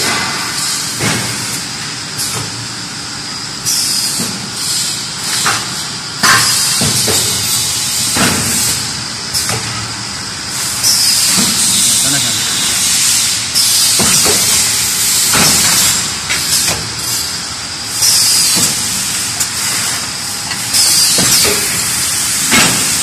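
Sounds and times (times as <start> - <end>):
pneumatic valve blasts: 0.0 - 1.6, 3.6 - 23.0
compressed air hissing: 10.5 - 23.0.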